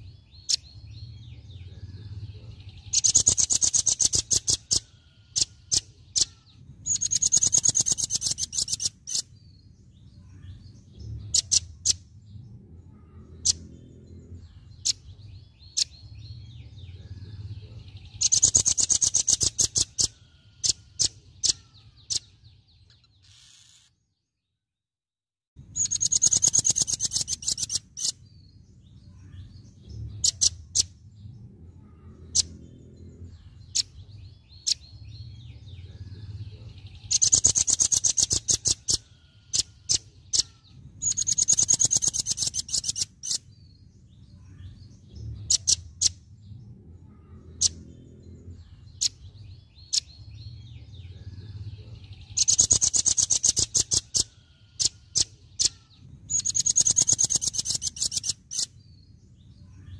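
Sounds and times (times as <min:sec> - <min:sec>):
bird rapid-fire song: 0:00.0 - 0:24.6, 0:25.6 - 0:59.9
sharp high bird calls: 0:02.8 - 0:09.4, 0:18.2 - 0:24.0, 0:25.8 - 0:28.2, 0:37.0 - 0:43.6, 0:52.2 - 0:58.8.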